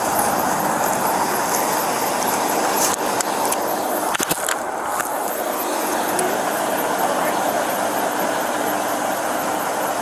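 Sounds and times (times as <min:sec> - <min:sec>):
steady rushing noise: 0:00.0 - 0:10.0.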